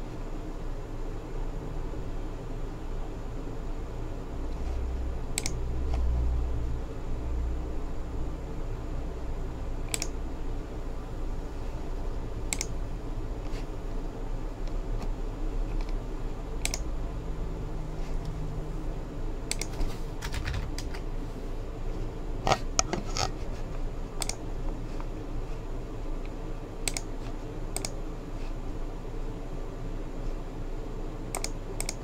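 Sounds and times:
low room hum: 0:00.0 - 0:32.0
keyboard typing: 0:05.3 - 0:06.0, 0:09.9 - 0:10.2, 0:12.5 - 0:12.8, 0:16.6 - 0:16.9, 0:19.5 - 0:21.0, 0:24.2 - 0:24.4, 0:26.8 - 0:28.0, 0:31.3 - 0:32.0.

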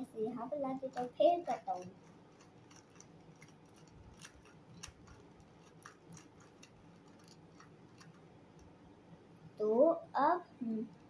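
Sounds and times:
puzzle cube clicking: 0:00.9 - 0:08.3.

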